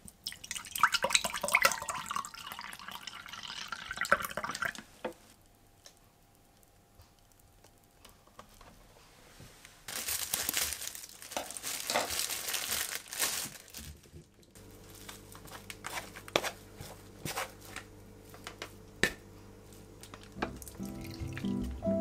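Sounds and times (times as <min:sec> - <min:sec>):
plastic bag crinkling: 0:09.9 - 0:16.6.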